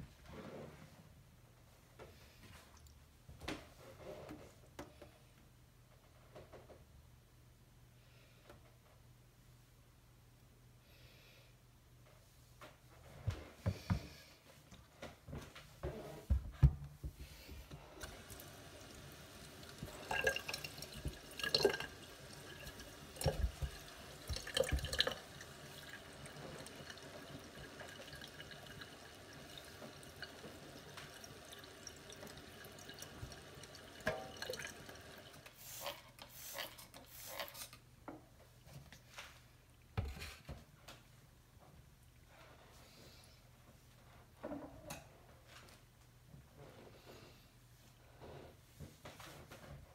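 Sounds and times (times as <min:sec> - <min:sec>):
tap running into sink: 0:19.6 - 0:28.8, 0:29.5 - 0:35.1.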